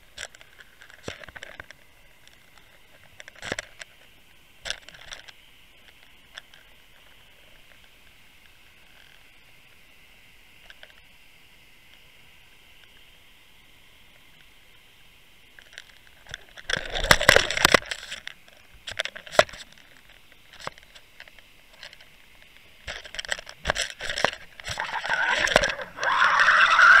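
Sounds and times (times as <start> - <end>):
faint steady hiss: 0.0 - 27.0
camera handling crackling and knocking: 22.9 - 24.8.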